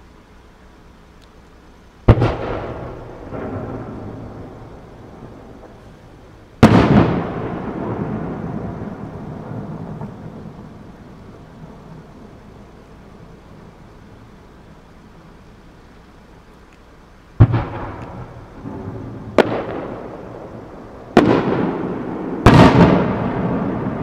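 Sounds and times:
rolling rumble: 0.0 - 24.0
firework shells bursting: 2.0 - 11.0, 16.5 - 24.0.

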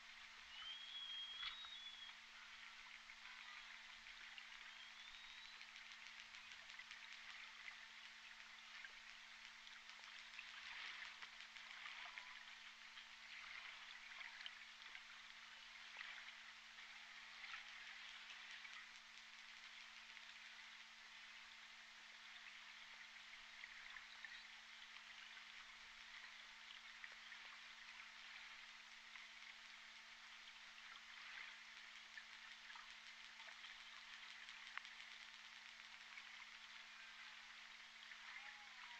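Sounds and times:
low underwater hum: 0.0 - 38.9
orca echolocation clicks: 4.5 - 11.9, 31.8 - 36.7.

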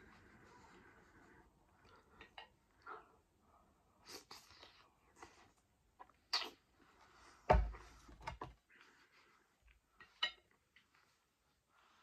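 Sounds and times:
slurp: 6.2 - 6.6.

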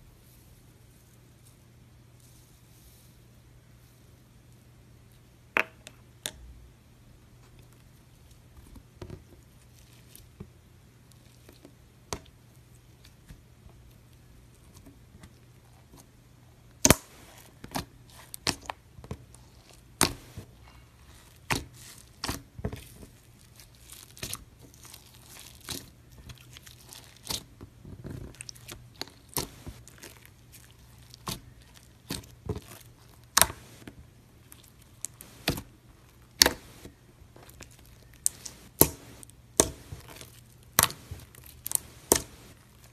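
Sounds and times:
fingers popping glittery slime: 38.2 - 42.4.

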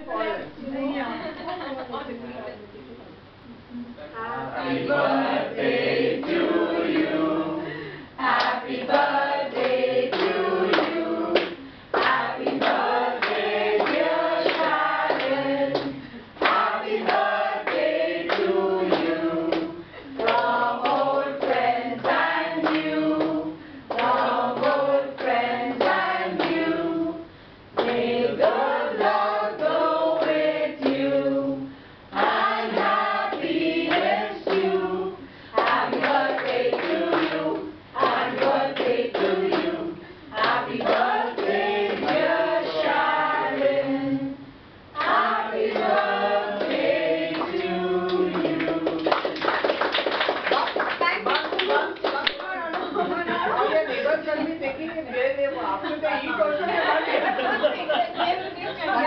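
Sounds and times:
group singing together: 4.1 - 50.6
people clapping along: 5.6 - 7.2, 8.2 - 26.7, 27.8 - 31.1, 32.2 - 34.9, 35.5 - 43.8, 45.0 - 53.0.

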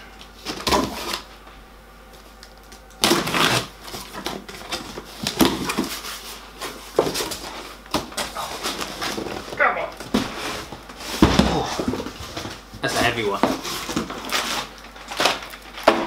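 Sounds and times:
box cutter slicing tape: 3.0 - 4.1.

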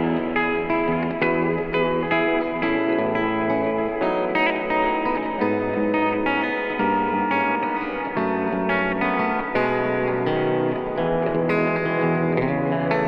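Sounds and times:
electric guitar with delay: 0.0 - 13.0.

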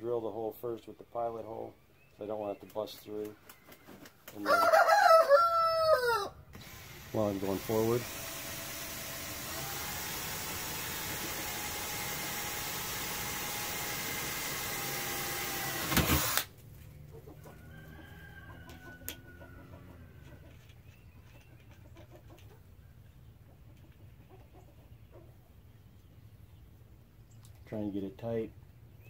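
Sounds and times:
rooster crowing: 4.4 - 6.4, 17.5 - 20.1
cordless drill boring: 6.5 - 16.5.

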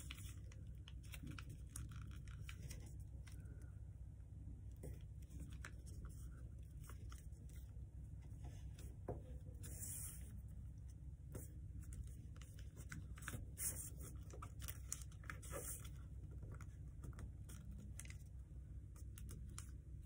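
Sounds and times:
steady low hum: 0.0 - 20.0
paper being folded: 11.4 - 18.4.

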